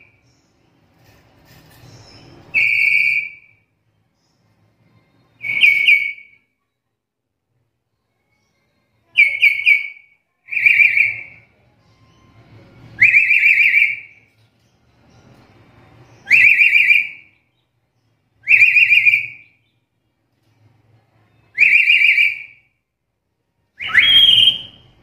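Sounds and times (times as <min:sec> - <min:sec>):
parrot whistled calls: 0:02.5 - 0:03.6, 0:05.4 - 0:06.4, 0:13.0 - 0:14.1, 0:16.2 - 0:17.4, 0:18.4 - 0:19.6, 0:23.8 - 0:24.9.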